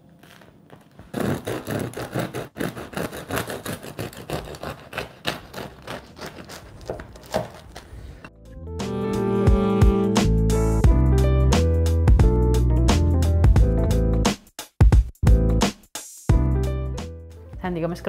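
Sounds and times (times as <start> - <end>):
bread knife sawing crusty loaf: 1.0 - 8.3.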